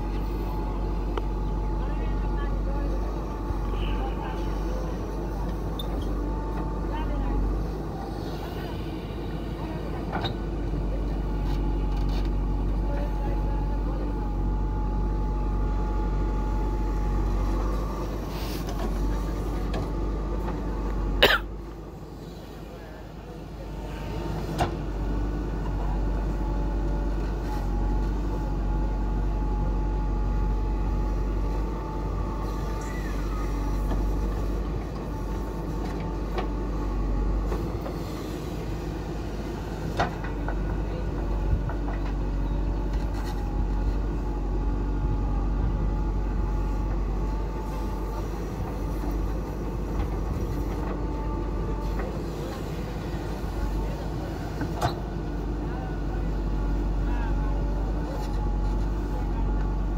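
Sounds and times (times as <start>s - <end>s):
diesel engine under load: 0.0s - 59.9s.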